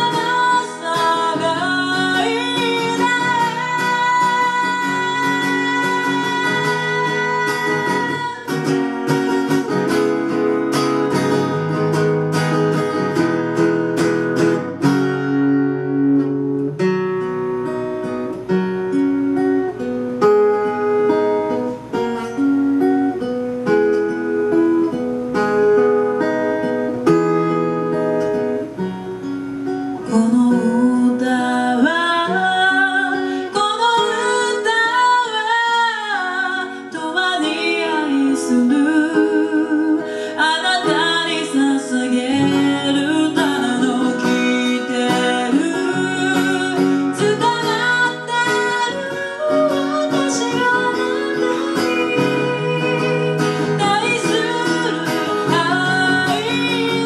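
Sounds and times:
woman singing: 0.0 - 13.6, 29.9 - 57.0
acoustic guitar: 0.0 - 57.0.

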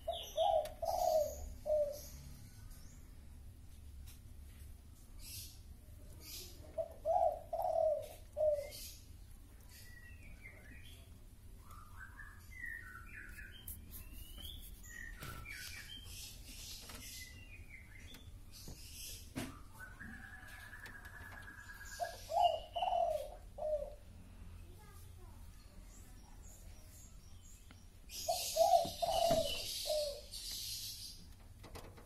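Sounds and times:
birds cooing: 0.0 - 2.8, 6.2 - 9.2, 14.9 - 24.2, 28.1 - 32.0
birds chirping: 0.0 - 3.6, 4.5 - 32.0.

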